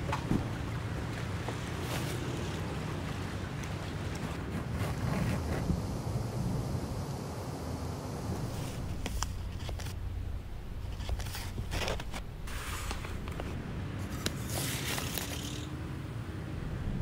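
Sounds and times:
low steady hum: 2.4s - 14.9s
paper rustling and crinkling: 8.5s - 10.0s, 10.8s - 15.7s.

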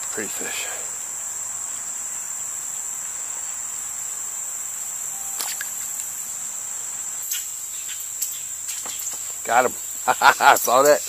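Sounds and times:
cicadas buzzing: 0.0s - 11.0s
brief click: 5.2s - 6.1s.

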